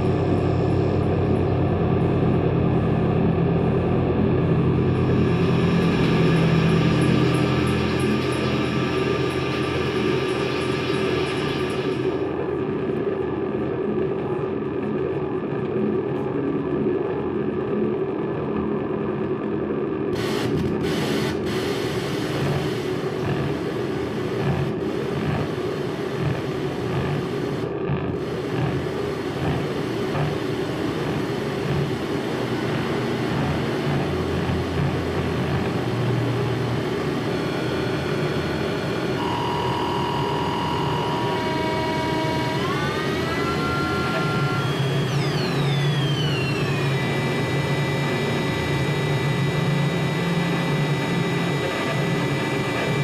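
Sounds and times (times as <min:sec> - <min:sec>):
dense rumbling noise: 0:20.2 - 0:39.2.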